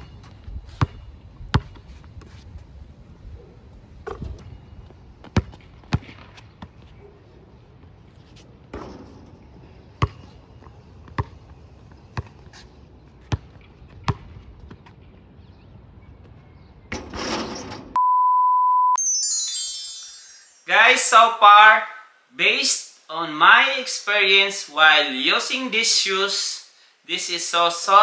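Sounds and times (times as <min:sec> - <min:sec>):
basketball bouncing on court: 0:00.8 - 0:01.8, 0:05.2 - 0:06.8, 0:10.0 - 0:10.3, 0:11.0 - 0:11.5, 0:13.3 - 0:14.9.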